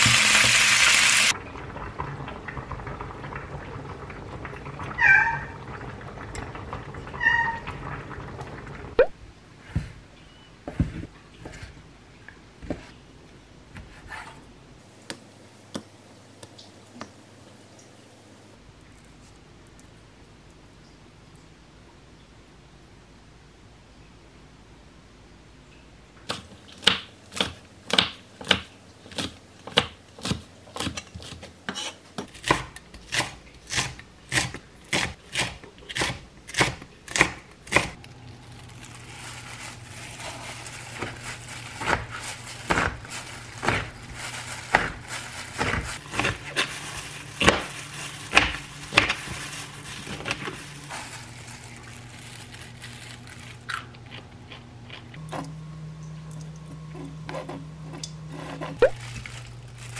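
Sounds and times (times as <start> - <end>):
knife cutting through kimchi: 44.7 - 49.3.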